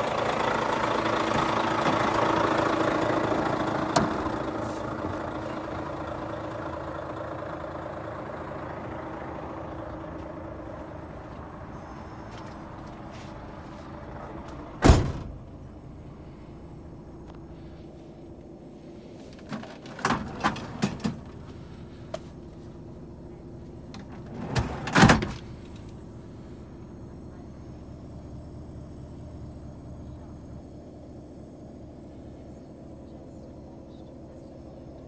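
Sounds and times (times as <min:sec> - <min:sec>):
steady low hum: 0:00.0 - 0:35.0
knocks and thuds in truck cab: 0:14.8 - 0:15.4.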